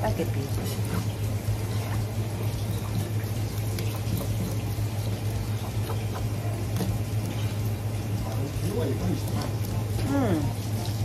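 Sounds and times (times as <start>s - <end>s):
water running: 0.0s - 11.0s.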